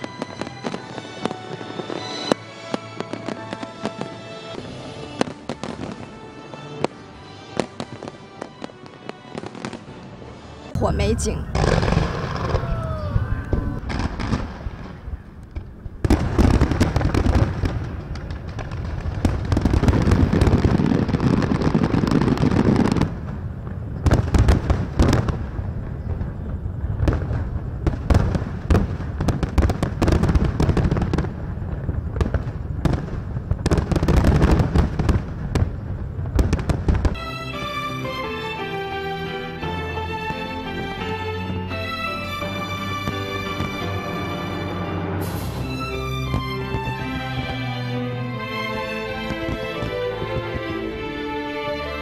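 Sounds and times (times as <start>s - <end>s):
music: 0.0s - 14.9s, 16.0s - 23.2s, 24.0s - 25.4s, 27.0s - 31.5s, 32.2s - 52.0s
fireworks crackling: 0.0s - 52.0s
firework shells bursting: 11.2s - 23.1s, 45.2s - 47.7s.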